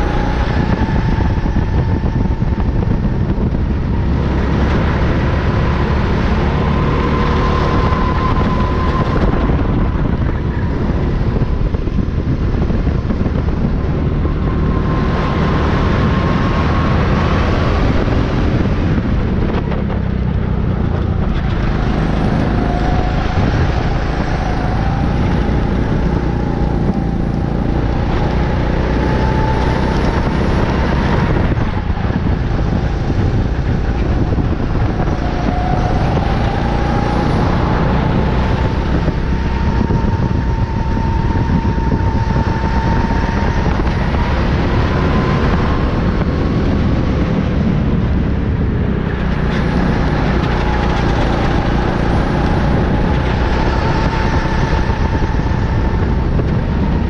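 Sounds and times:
kart engine at speed: 0.0s - 57.0s
wind and road noise: 0.0s - 57.0s.

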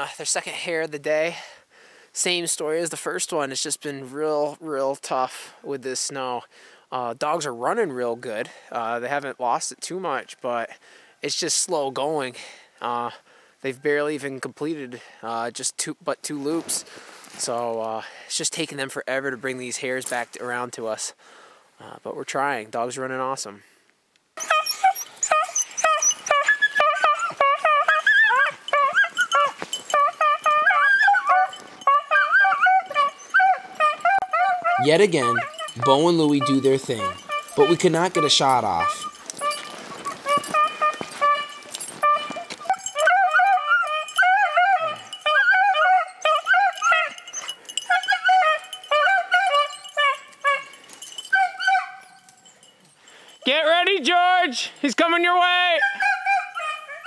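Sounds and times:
dogs baying with high yelps: 24.4s - 53.4s, 55.7s - 57.0s.

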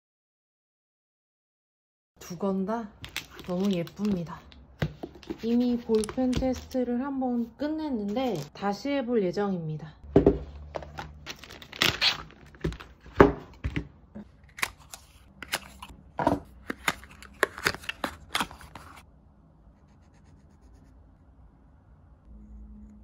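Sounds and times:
paper wrapper rustling: 3.0s - 4.5s, 5.1s - 6.7s, 10.7s - 13.2s, 16.7s - 19.0s.

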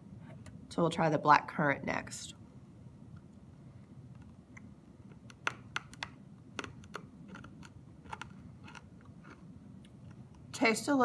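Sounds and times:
hard candy clicking against teeth: 4.6s - 10.2s.

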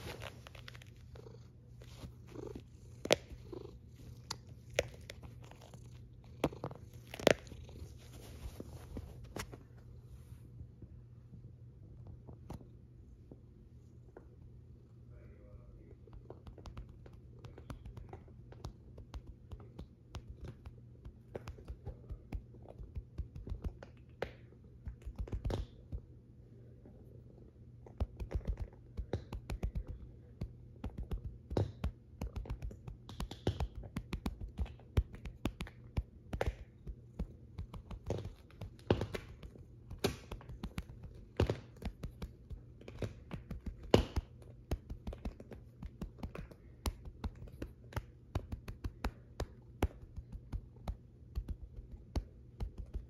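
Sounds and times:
hand stroking cat fur: 0.0s - 10.4s
low steady hum: 0.0s - 53.0s.

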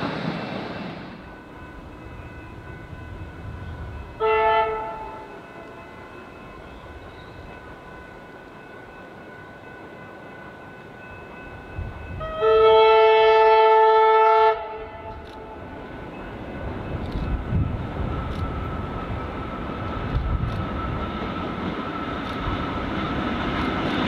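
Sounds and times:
low rumble of train: 0.0s - 24.0s
train horn blasts: 3.6s - 6.2s, 12.1s - 15.8s.

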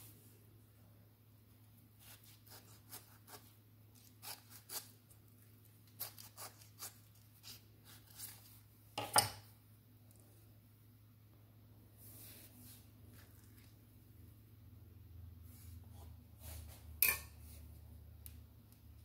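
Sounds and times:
faint low hum: 0.0s - 19.0s
knife cutting avocado skin: 2.0s - 5.1s, 5.8s - 9.3s.

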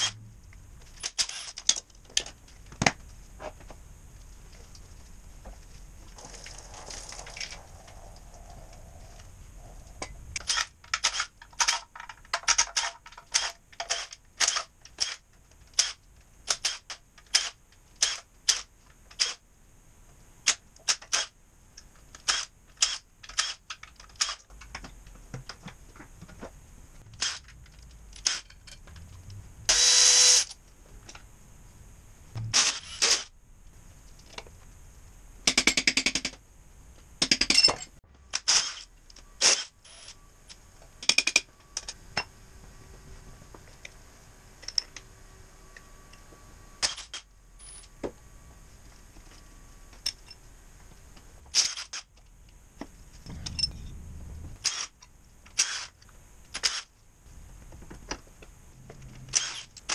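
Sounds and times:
impact wrench bursts: 0.0s - 0.2s, 13.3s - 18.6s, 22.2s - 24.4s, 27.1s - 27.5s, 28.2s - 28.6s, 29.7s - 30.6s, 32.4s - 33.3s, 38.3s - 40.2s, 46.8s - 47.8s, 54.6s - 56.9s, 59.3s - 59.9s.

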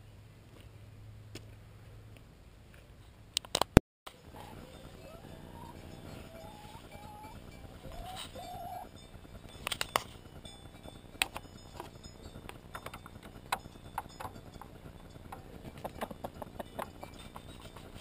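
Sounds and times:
hens clucking: 4.2s - 9.0s, 12.8s - 18.0s
hens pecking taps: 11.2s - 18.0s.

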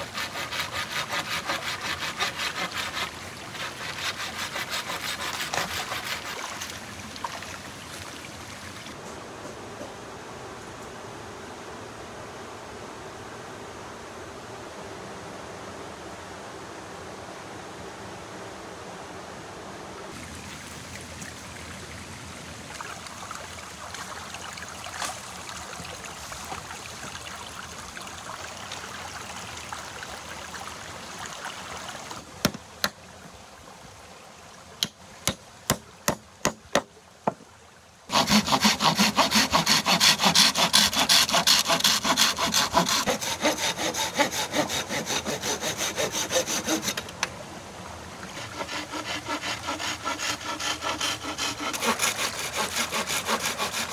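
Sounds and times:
hand saw cutting wood: 0.0s - 6.7s, 38.1s - 47.2s, 48.3s - 53.9s
soft steady noise: 0.0s - 53.9s.

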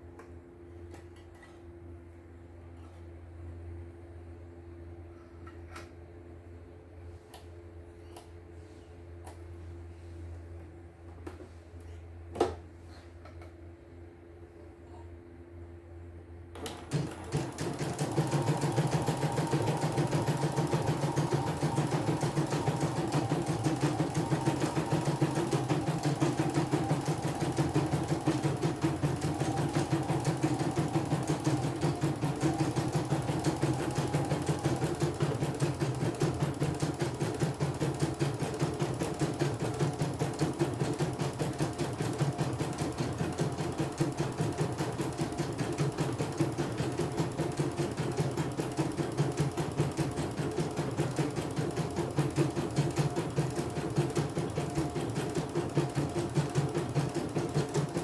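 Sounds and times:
embroidery machine stitching: 16.6s - 58.0s.

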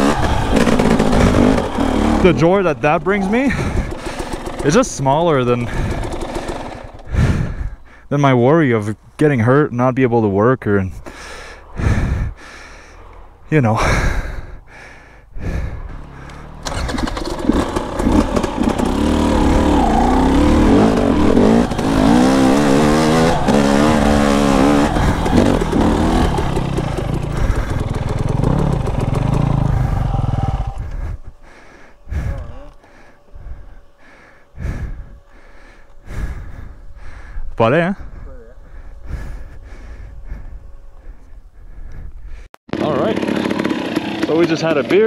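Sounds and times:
dirt bike engine revving: 0.0s - 7.9s, 11.1s - 41.6s, 42.7s - 45.0s.

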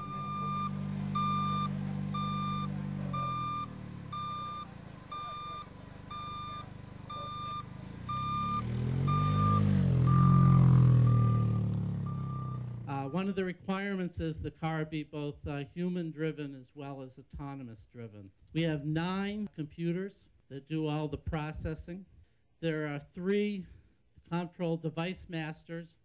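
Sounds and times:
car engine running: 0.0s - 13.3s
warning beeper: 0.0s - 13.4s.

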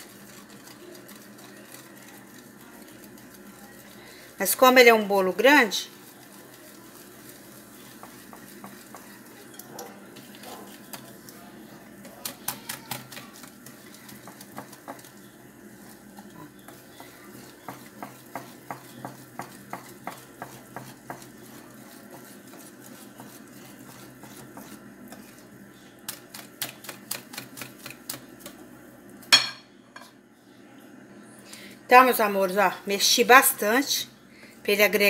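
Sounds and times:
whisk clicking against glass bowl: 12.0s - 15.2s, 16.7s - 25.2s.

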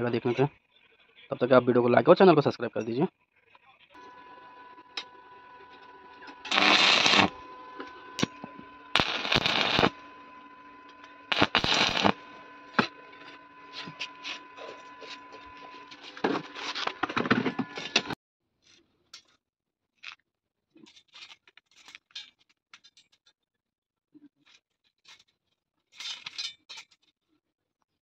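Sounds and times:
arc welding crackling: 4.0s - 18.2s
steady hum: 4.0s - 18.2s.

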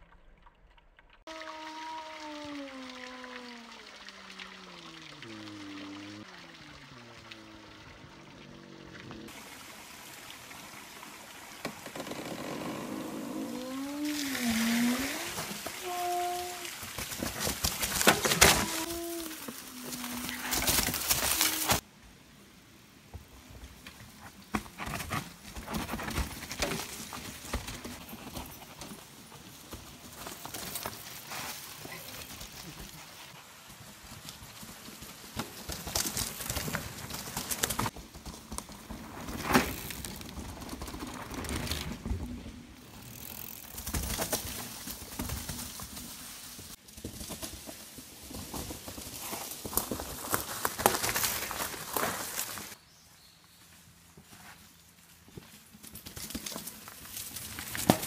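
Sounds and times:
crunching through leaf litter: 17.2s - 21.8s, 48.5s - 52.8s
bike clicks and rattles: 42.9s - 45.9s.

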